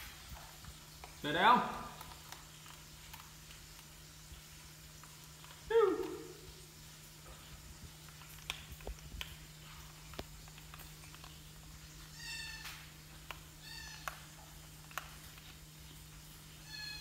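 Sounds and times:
baby monkey high-pitched calls: 0:12.1 - 0:12.8, 0:13.6 - 0:14.1, 0:16.6 - 0:17.0.

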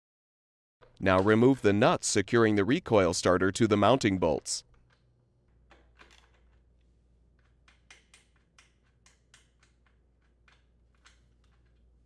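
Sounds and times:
socket wrench ratchet clicking: 0:07.4 - 0:11.9.

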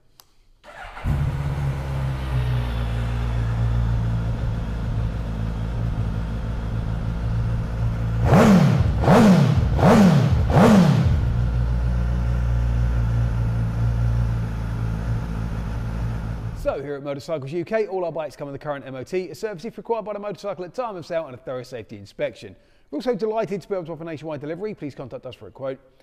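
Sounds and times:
motorcycle engine idling: 0:00.7 - 0:16.7.

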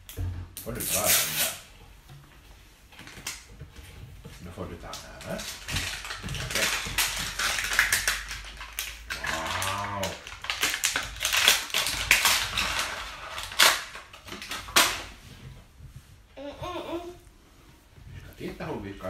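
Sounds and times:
plastic wrapper crackling: 0:04.8 - 0:15.2.

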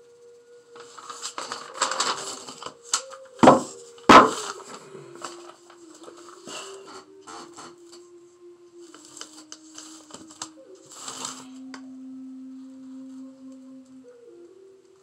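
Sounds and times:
slow low melody: 0:00.6 - 0:15.0
paper sheets rustling: 0:00.8 - 0:08.0, 0:08.8 - 0:11.6.

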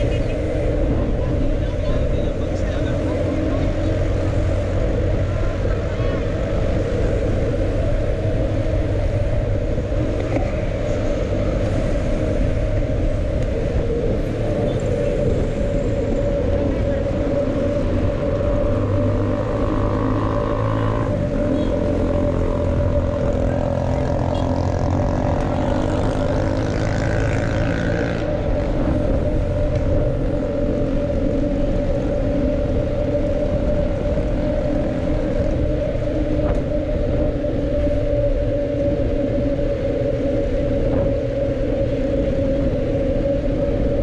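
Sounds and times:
wind buffeting microphone: 0:00.0 - 0:44.0.

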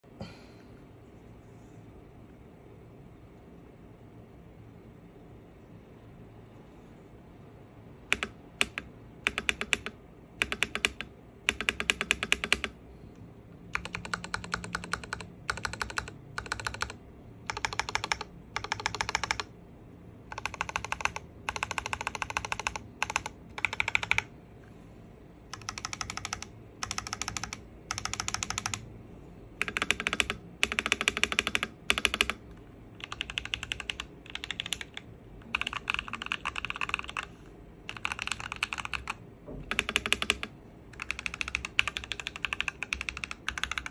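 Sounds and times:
mechanical keyboard typing: 0:08.0 - 0:12.8, 0:13.6 - 0:19.6, 0:20.2 - 0:24.4, 0:25.5 - 0:28.9, 0:29.6 - 0:43.9.

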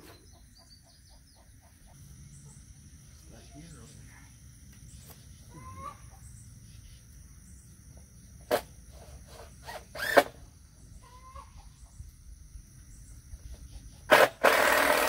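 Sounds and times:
chickens clucking: 0:00.0 - 0:02.6, 0:05.4 - 0:06.3, 0:11.0 - 0:12.1
high insect drone: 0:00.0 - 0:15.0.

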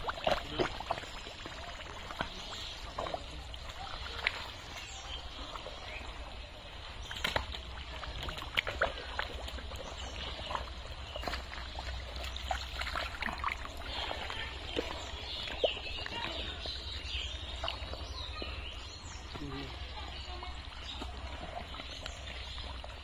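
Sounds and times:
water trickling: 0:00.0 - 0:23.0
hands squelching through mud: 0:07.0 - 0:18.3.

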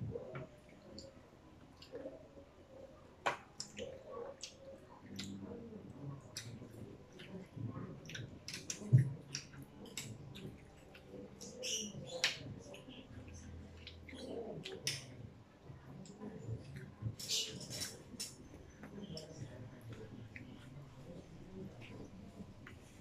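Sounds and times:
children chewing food: 0:00.0 - 0:23.0
wet mouth clicks and smacks: 0:03.3 - 0:05.4, 0:06.3 - 0:11.6.

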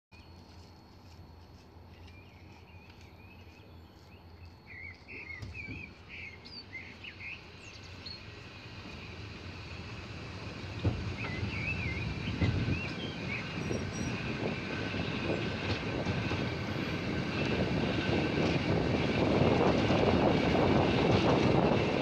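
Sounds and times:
low rumble of moving train: 0:00.2 - 0:22.0
songbirds singing: 0:01.9 - 0:09.0, 0:10.7 - 0:15.7.

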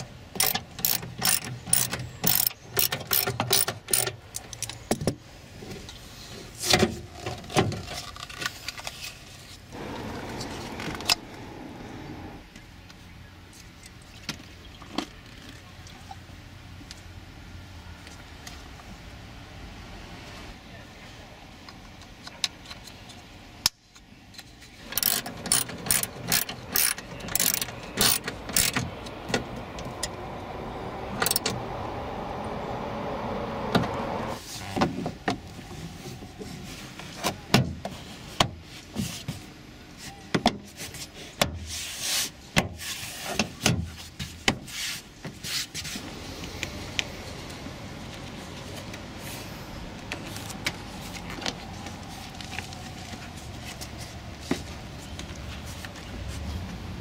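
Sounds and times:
faint rising hum: 0:09.7 - 0:12.6, 0:27.4 - 0:34.4.

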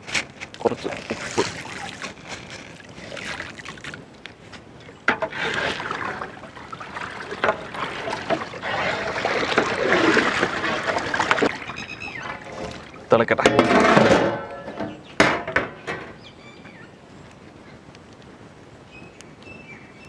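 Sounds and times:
water sloshing in metal pot: 0:05.0 - 0:15.8.

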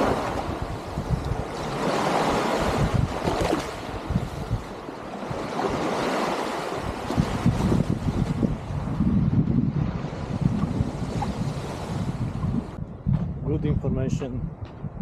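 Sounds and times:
small waves breaking on sandy shore: 0:00.0 - 0:09.0, 0:09.7 - 0:12.8
wind buffeting microphone: 0:00.0 - 0:15.0.

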